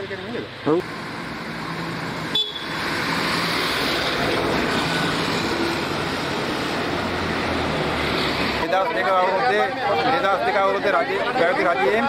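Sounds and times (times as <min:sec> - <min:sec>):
passing vehicles rushing: 0:00.0 - 0:12.0.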